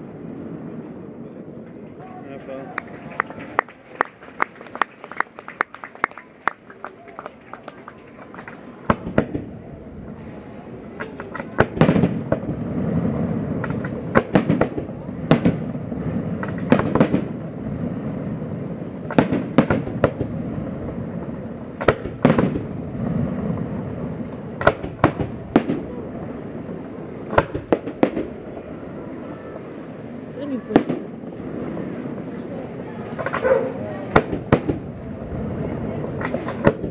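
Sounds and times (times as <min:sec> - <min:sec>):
rolling low rumble: 0:00.0 - 0:36.9
firework shells bursting: 0:13.5 - 0:17.4.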